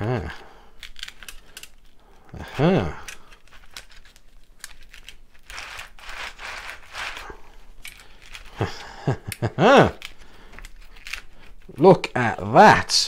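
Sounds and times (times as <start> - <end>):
pipe scraping through rollers: 5.4 - 7.4.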